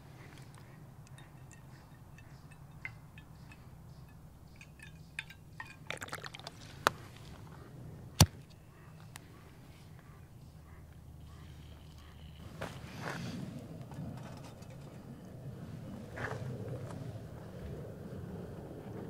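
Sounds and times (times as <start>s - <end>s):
sharp metallic taps: 1.0s - 5.8s
liquid dripping and trickling: 4.6s - 6.8s.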